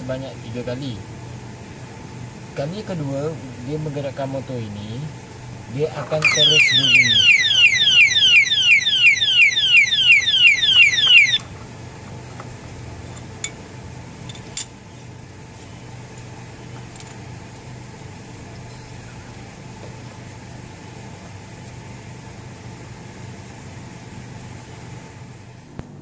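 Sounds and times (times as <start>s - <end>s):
low steady hum: 0.0s - 26.0s
alarm siren whooping: 6.2s - 11.4s.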